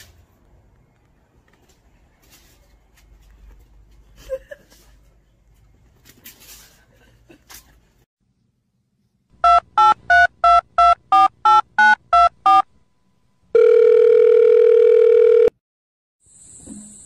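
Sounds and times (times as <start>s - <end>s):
long steady telephone tone: 13.5s - 15.6s.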